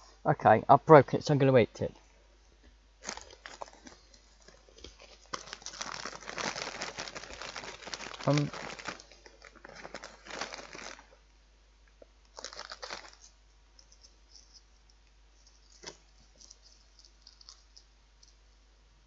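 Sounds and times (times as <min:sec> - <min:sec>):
plastic snack packet crinkling: 0:03.0 - 0:11.2, 0:12.3 - 0:14.6, 0:15.6 - 0:18.4
faint light clicks and crackles: 0:11.8 - 0:18.6.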